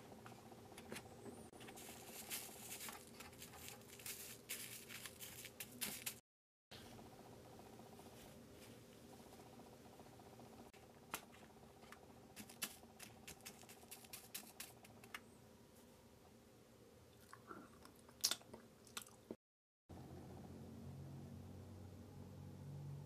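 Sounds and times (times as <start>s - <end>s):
faint room hum: 0.0s - 23.0s
candy clicking in sugar sprinkles: 1.8s - 6.2s, 12.4s - 15.2s.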